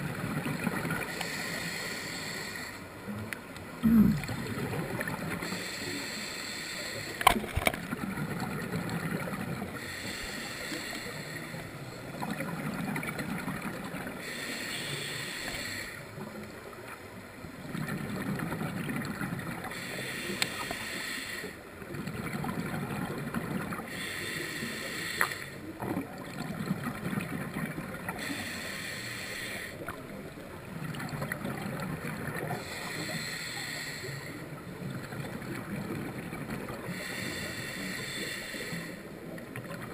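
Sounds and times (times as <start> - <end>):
regulator inhale hiss: 1.1 - 2.9, 5.4 - 7.3, 9.8 - 11.9, 14.2 - 16.2, 19.7 - 21.6, 23.9 - 25.7, 28.2 - 29.9, 32.6 - 34.6, 36.8 - 39.3
exhale bubbles rumbling: 3.8 - 5.5.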